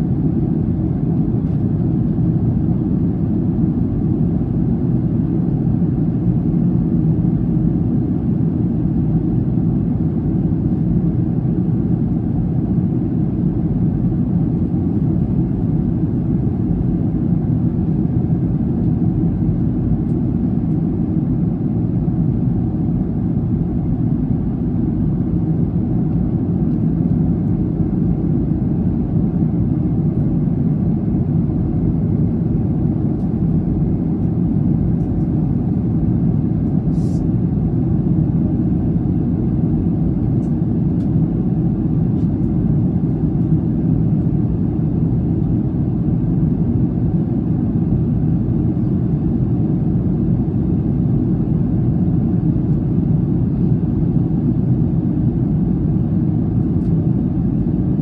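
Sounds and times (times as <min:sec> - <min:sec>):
airliner cabin roar: 0:00.0 - 0:58.0.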